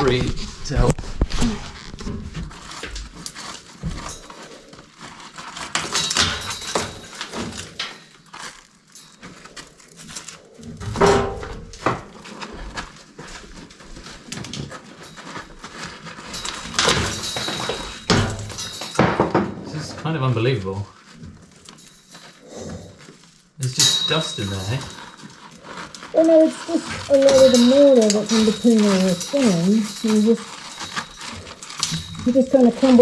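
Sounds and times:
grit trickling: 19.7s - 33.0s
stones scraping: 19.7s - 33.0s.

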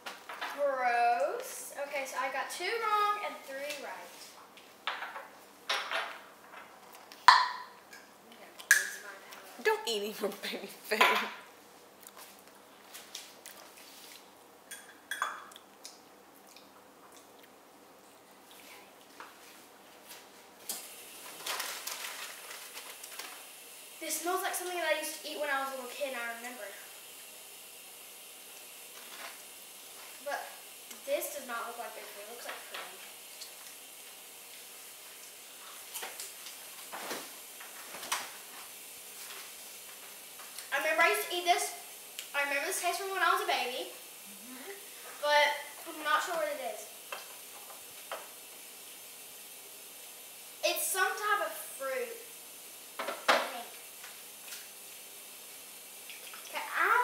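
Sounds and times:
room hiss: 0.0s - 17.0s, 17.6s - 57.0s
faint mouth clicks and smacks: 15.5s - 17.6s.

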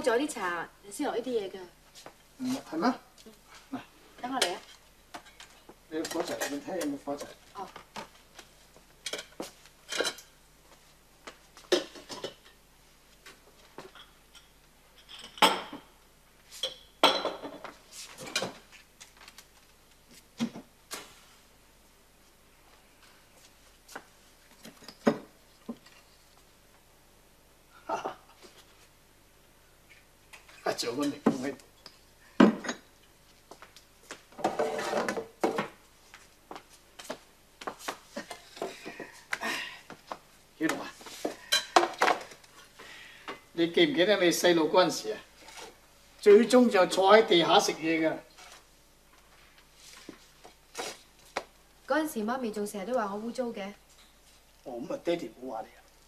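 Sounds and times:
dishes clattering: 11.7s - 12.6s, 13.9s - 15.9s, 16.6s - 18.6s, 34.4s - 35.7s, 41.5s - 42.3s
wood and dishware scraping: 34.4s - 35.6s.

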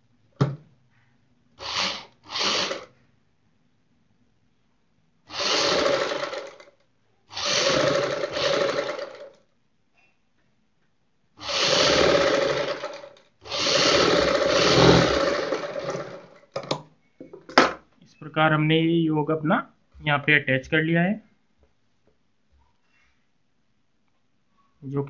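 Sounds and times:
sewing machine running: 1.6s - 2.9s, 5.3s - 6.7s, 7.3s - 9.4s, 11.4s - 16.4s.

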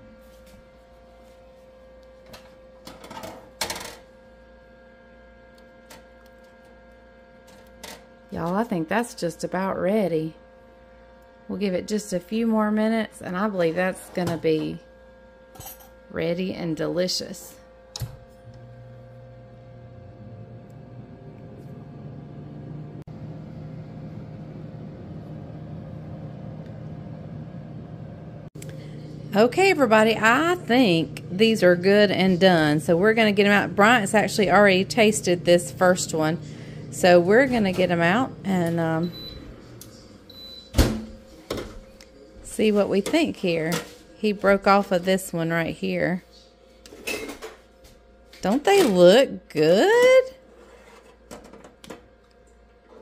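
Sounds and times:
steady hum: 0.0s - 53.0s.

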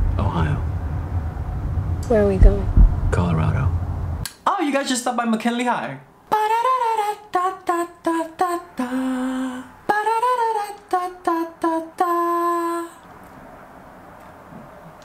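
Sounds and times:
man singing: 6.3s - 13.0s.

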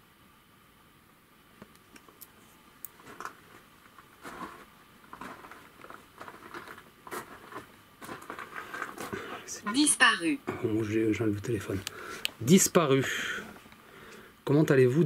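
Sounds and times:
faint steady hum: 0.0s - 15.0s
handling noise rustling and clicks: 2.9s - 9.2s.

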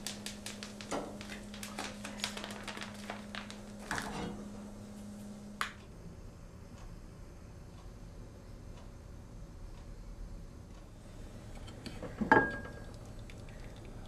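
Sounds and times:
mint frying in hot oil: 0.0s - 4.3s, 11.0s - 14.0s
steady low hum: 0.0s - 14.0s.

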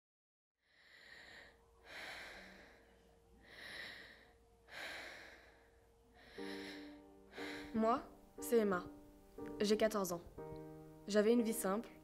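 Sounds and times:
person breathing: 0.6s - 7.8s.

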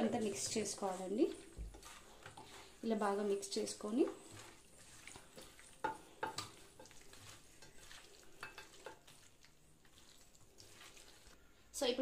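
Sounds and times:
hand squelching raw chicken: 9.1s - 11.4s.

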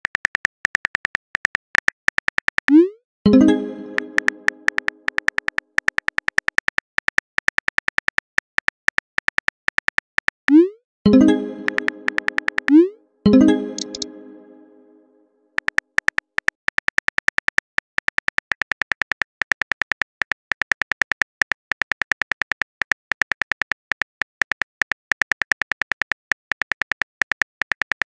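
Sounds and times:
phone keyboard clicks: 15.6s - 28.0s.

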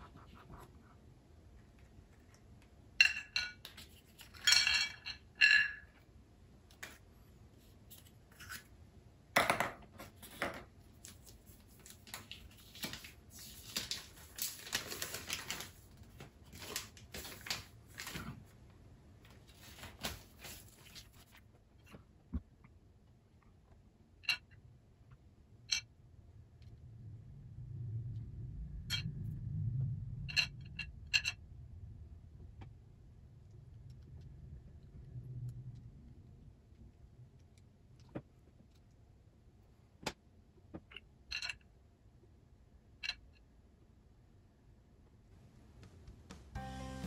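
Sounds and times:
crinkly rustling: 10.9s - 18.6s, 19.3s - 21.4s.

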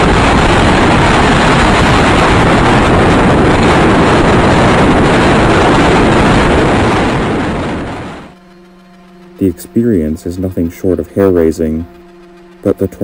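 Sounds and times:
loud wind blasting microphone: 0.0s - 8.4s.

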